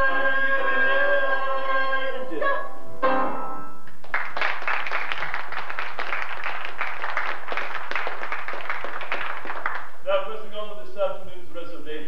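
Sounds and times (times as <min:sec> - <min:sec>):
audience applause: 0:03.9 - 0:10.0.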